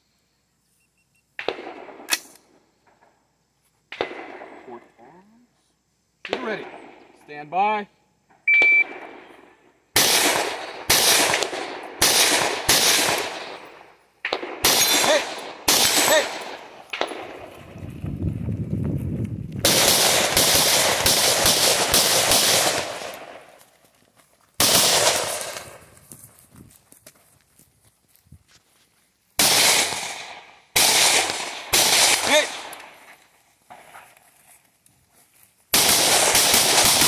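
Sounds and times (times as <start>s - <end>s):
rifle gunshots: 1.4s - 2.3s, 3.9s - 4.7s, 8.6s - 17.6s, 19.6s - 23.5s, 24.6s - 25.8s, 29.4s - 33.0s, 35.7s - 37.0s
shot timer beep: 8.5s - 8.9s
running rumble and rustle: 17.4s - 19.6s.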